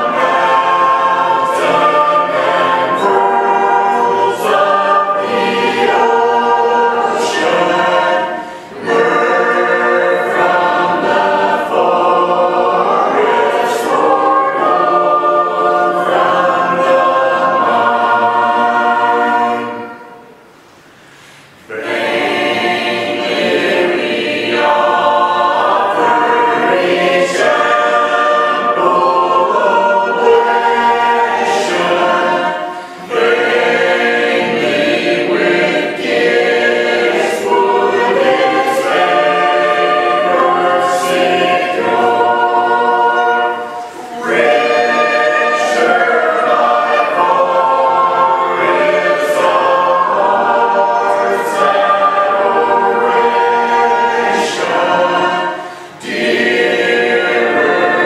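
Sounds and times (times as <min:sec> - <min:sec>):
congregation singing a hymn: 0:00.0 - 0:58.0.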